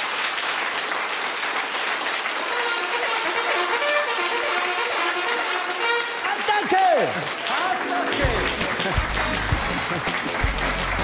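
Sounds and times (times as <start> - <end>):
audience applauding: 0.0 - 11.0
trumpet playing short notes: 2.5 - 6.4.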